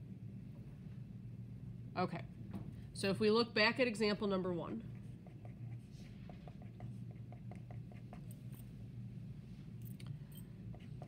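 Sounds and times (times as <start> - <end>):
pen scratching on paper: 5.0 - 8.3.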